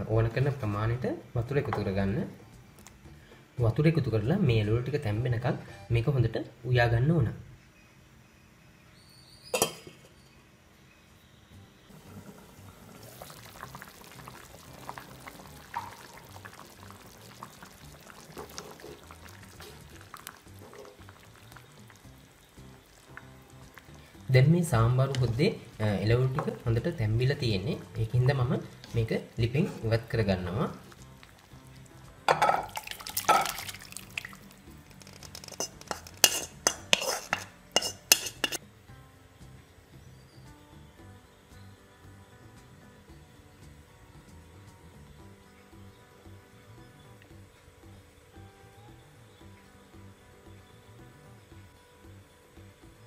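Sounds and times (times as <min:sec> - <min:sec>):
pot bubbling and simmering: 0:11.9 - 0:38.6
thick curry pouring and splashing: 0:12.8 - 0:24.0, 0:30.8 - 0:38.6
pot clinking and scraping on bowl: 0:32.3 - 0:33.8, 0:35.2 - 0:38.6.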